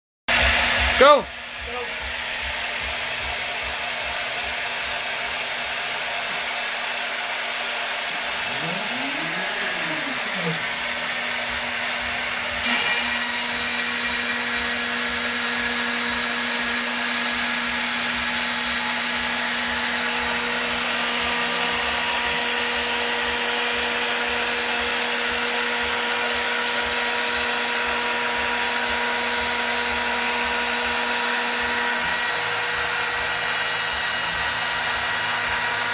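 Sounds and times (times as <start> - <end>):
stepper motors whining: 0.3 - 27.8
router spindle whining: 0.3 - 35.9.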